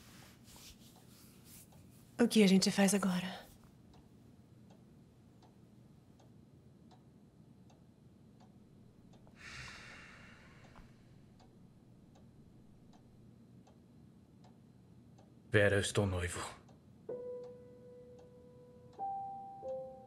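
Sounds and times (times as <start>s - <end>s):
soft hiss: 0.0s - 7.0s
clock ticking: 1.7s - 9.5s, 10.6s - 20.0s.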